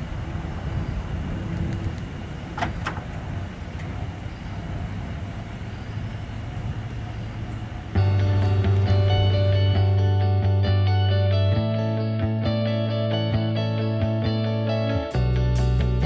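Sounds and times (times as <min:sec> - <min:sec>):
pickup engine idling: 0:00.0 - 0:10.6
tailgate clicks: 0:01.5 - 0:04.0.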